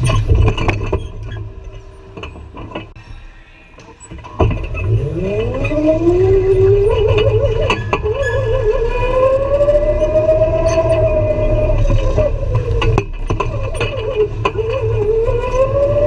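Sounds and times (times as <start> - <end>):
go-kart motor whining: 3.8 - 16.0.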